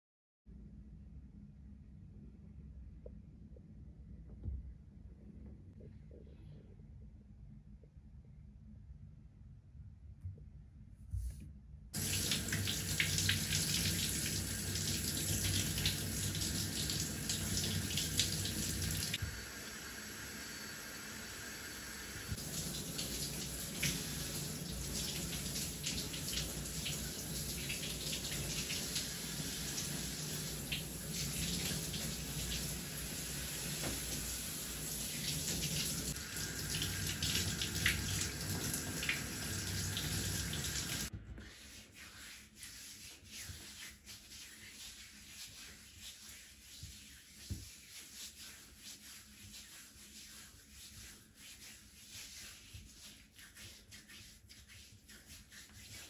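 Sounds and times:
shower spraying water into bathtub: 12.0s - 56.0s.

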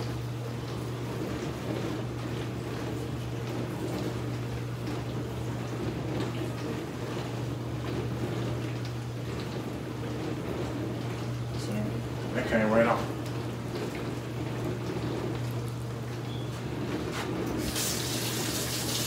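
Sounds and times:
pot bubbling on stove: 16.7s - 19.0s.

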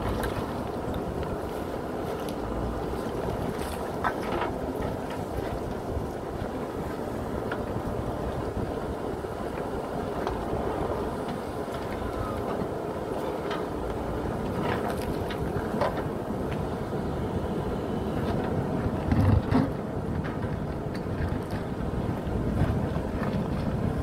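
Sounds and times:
diesel engine running: 6.3s - 24.0s.

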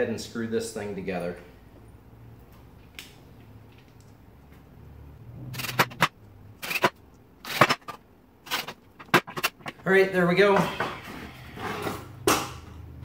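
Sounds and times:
drill clacking and knocking: 5.6s - 9.8s.

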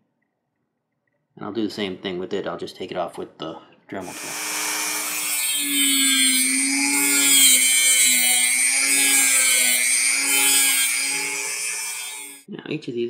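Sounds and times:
rotary tool grinding metal: 4.0s - 12.5s.

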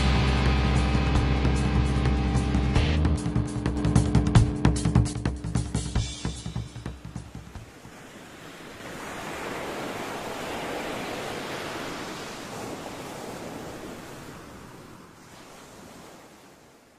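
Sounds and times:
ocean wave washing in: 6.2s - 16.9s.

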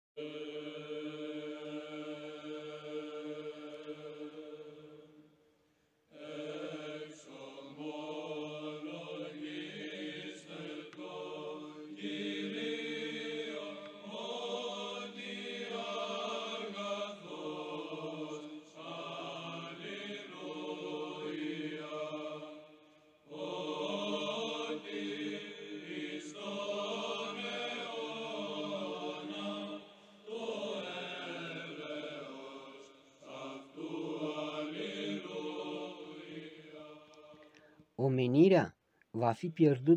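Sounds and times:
men chanting in chorus: 6.1s - 37.6s.

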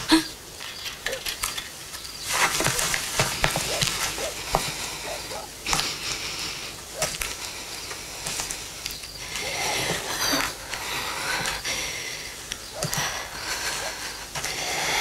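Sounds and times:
light clicks and rustles: 0.5s - 4.9s
person breathing heavily: 3.4s - 15.0s.

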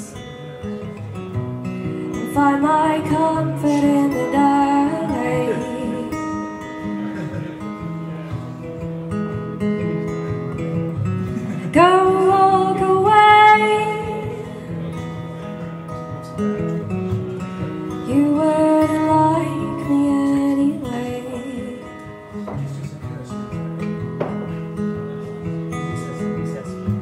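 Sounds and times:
strummed acoustic guitar: 0.0s - 27.0s
woman singing: 2.1s - 6.3s, 11.7s - 14.9s, 18.0s - 22.2s.

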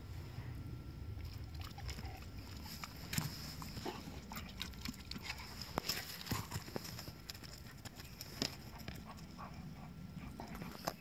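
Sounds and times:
steady low rumble: 0.0s - 11.0s
dog claws clicking and scuffing: 2.7s - 9.3s.

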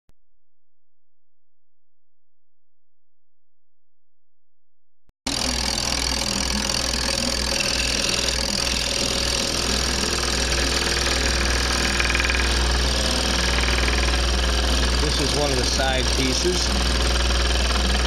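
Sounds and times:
scroll saw cutting wood: 5.3s - 18.0s.

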